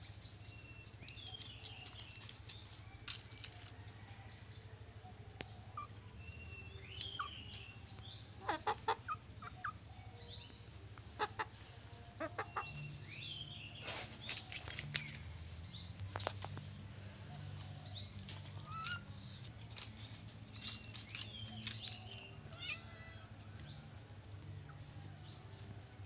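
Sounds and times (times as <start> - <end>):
hens clucking: 8.4 - 9.8, 10.7 - 13.0, 17.3 - 19.8.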